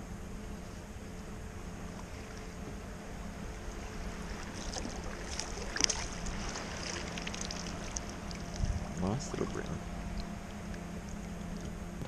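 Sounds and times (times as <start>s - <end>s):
fish thrashing water splashes: 4.4s - 8.7s
steady wind noise: 8.1s - 12.0s.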